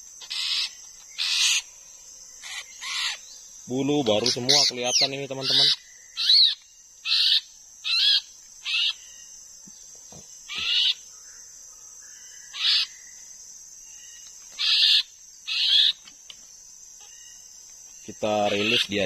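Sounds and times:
high insect drone: 0.0s - 19.0s
bird giving harsh calls: 0.2s - 1.6s, 2.4s - 3.2s, 4.2s - 9.0s, 10.5s - 11.0s, 14.6s - 16.0s, 18.4s - 19.0s.

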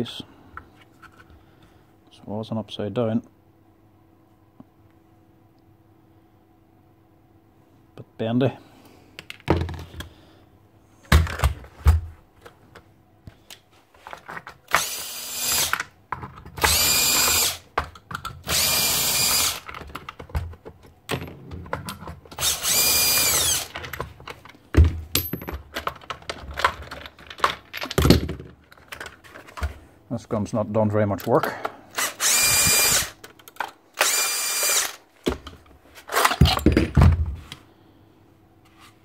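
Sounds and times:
cordless drill whining: 14.7s - 15.8s, 16.6s - 17.6s, 18.4s - 19.7s, 22.4s - 23.7s, 31.9s - 33.2s, 34.0s - 35.0s.

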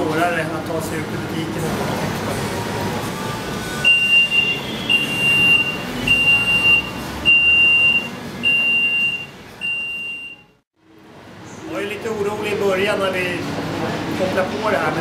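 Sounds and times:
gate alarm beeping: 3.8s - 10.5s.

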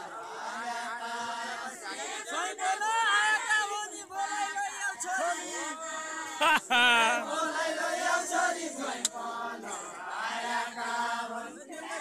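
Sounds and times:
men singing folk song: 0.0s - 12.0s
loud wavering voice: 6.4s - 7.3s.

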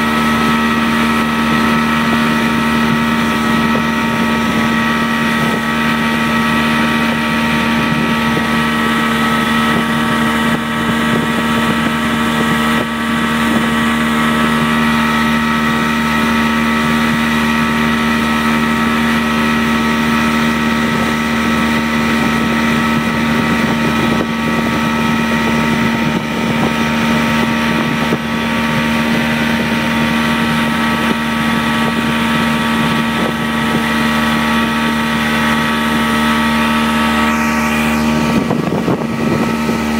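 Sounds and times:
motorboat engine running: 0.0s - 39.9s
rush of noise: 0.0s - 39.9s.

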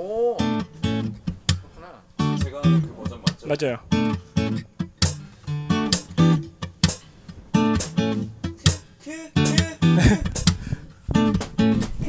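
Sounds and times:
acoustic guitar strumming chords: 0.3s - 12.0s.

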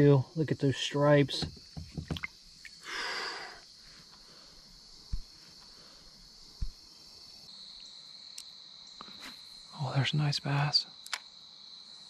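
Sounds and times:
insects chirring: 0.0s - 12.0s
dull knocks: 1.4s - 2.3s.

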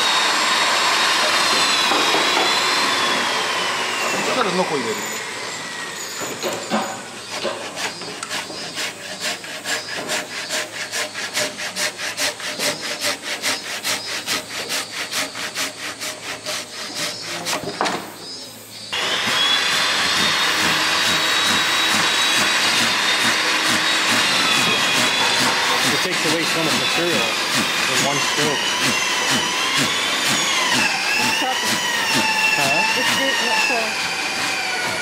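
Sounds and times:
hand saw cutting wood: 0.0s - 18.1s, 19.0s - 35.0s
machine noise with high whine: 17.1s - 35.0s.

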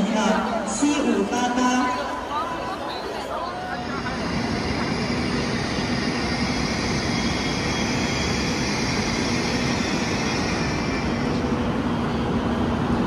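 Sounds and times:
steady train hum: 0.0s - 13.0s
subway train wheels rumbling on rail: 0.0s - 13.0s.

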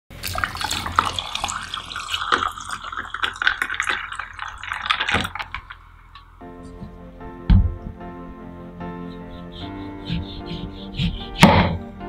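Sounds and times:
juice pouring into glass: 0.1s - 6.2s.

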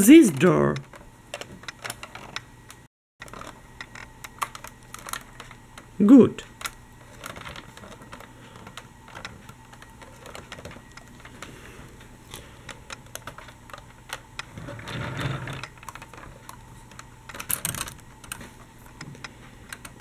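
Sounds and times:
scraping handling noise: 6.6s - 20.0s.

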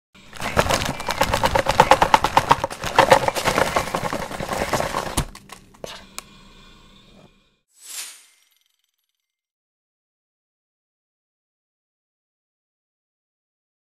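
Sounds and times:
plastic wrappers crinkling: 0.3s - 5.7s.

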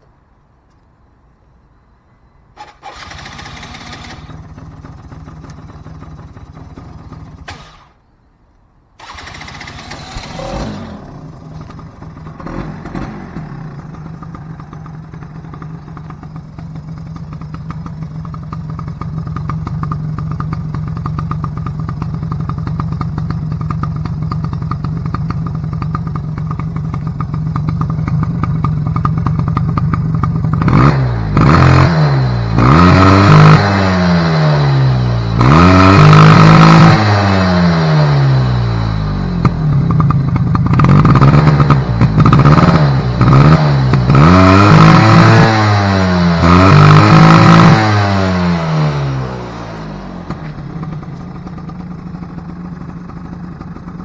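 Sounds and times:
atv engine idling and revving: 2.6s - 8.0s, 9.0s - 54.0s.

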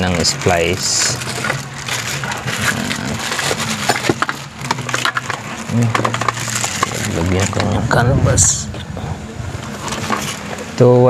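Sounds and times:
plastic crackling and clicking: 0.0s - 7.8s.

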